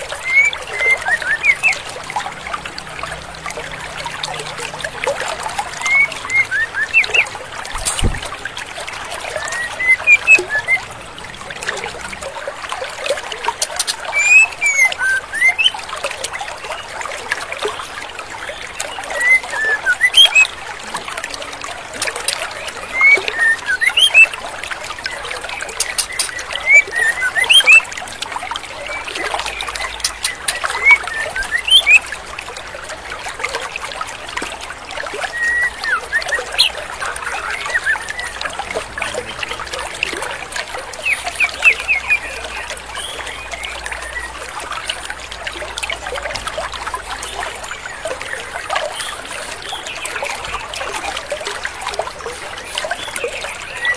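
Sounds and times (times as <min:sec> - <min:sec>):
stream trickling over rocks: 0:00.0 - 0:53.9
bird whistled chirps: 0:05.9 - 0:07.2, 0:09.4 - 0:10.8, 0:14.2 - 0:15.7, 0:19.2 - 0:20.5, 0:23.0 - 0:24.3, 0:26.0 - 0:27.8, 0:30.2 - 0:32.0, 0:35.3 - 0:36.8.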